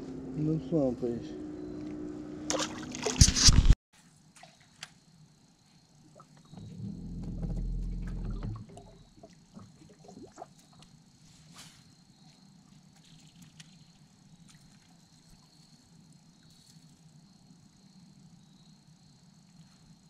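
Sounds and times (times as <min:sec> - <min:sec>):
water lapping against boat hull: 0:02.5 - 0:03.5, 0:06.1 - 0:11.0
low hum: 0:05.9 - 0:10.8.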